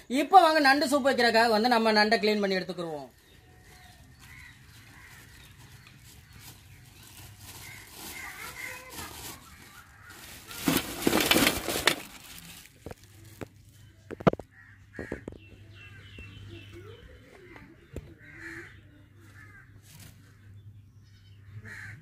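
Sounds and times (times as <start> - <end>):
plastic bag rustling: 3.2 - 14.3
crows cawing: 3.5 - 6.7, 7.5 - 10.8, 14.5 - 15.4, 18.2 - 19.9, 21.4 - 22.0.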